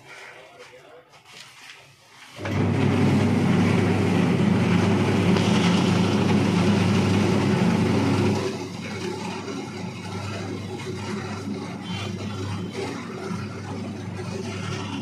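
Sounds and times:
seeds tumbling in rotating drum: 1.4 - 15.0
electric motor humming: 2.4 - 15.0.

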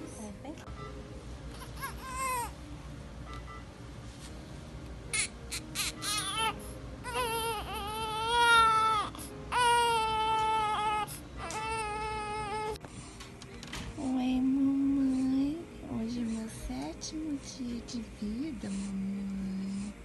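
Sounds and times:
newborn baby crying: 1.5 - 2.5, 5.1 - 12.8.

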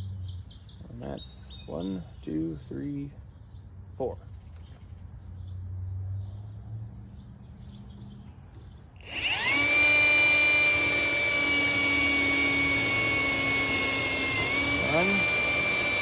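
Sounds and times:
cordless drill cutting sheet steel: 9.0 - 16.0.

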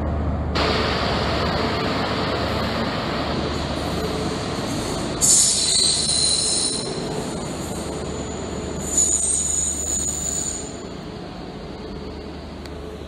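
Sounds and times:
diesel train engine and wheels rumbling: 0.0 - 13.0
shrill wheel squeal: 5.2 - 12.5.

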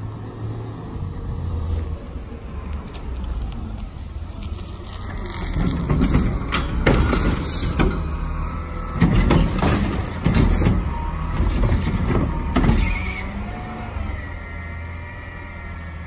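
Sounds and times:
garbage truck diesel engine running: 5.1 - 16.0
clanks and knocks of arm and cart: 5.6 - 8.1, 8.9 - 12.8.

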